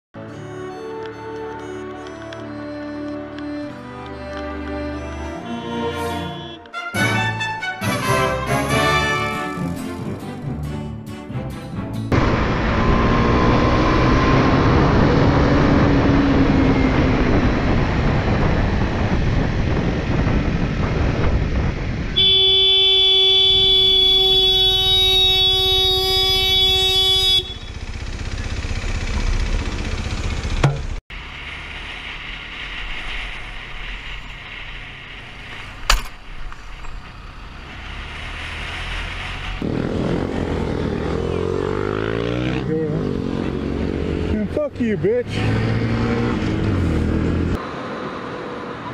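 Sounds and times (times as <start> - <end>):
vehicle horn: 5.4 - 9.7, 22.2 - 28.2
motorcycle engine: 12.1 - 48.7
wind roar on microphone: 12.7 - 22.2.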